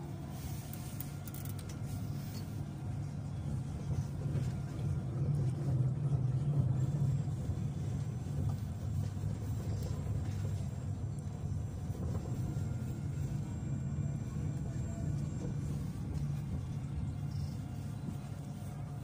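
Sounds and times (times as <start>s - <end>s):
tram rumbling on rails: 0.0s - 19.0s.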